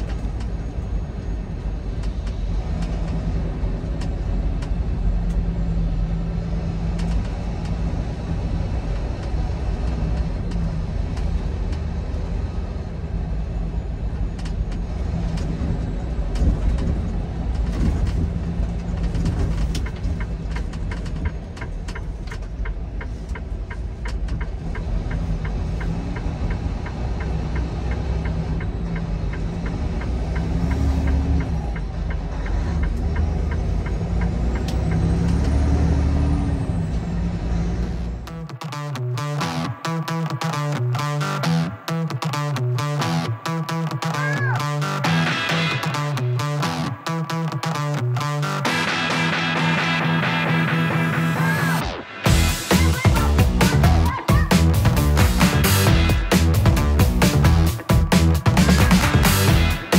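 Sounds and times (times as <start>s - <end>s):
road rumble: 0.0s - 59.9s
truck diesel engine: 0.0s - 59.9s
even ticks: 19.6s - 35.5s.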